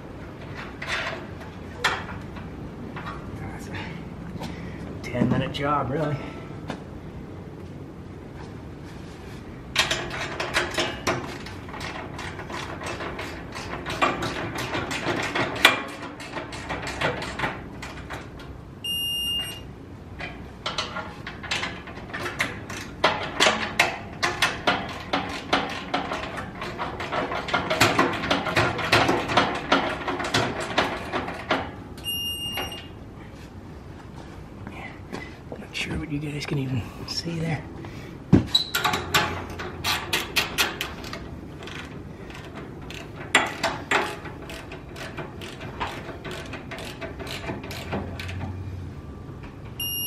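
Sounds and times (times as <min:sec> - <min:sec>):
ratchet wrench clicking: 0:41.6 - 0:48.4
short high electronic beep: 0:49.8 - 0:50.0.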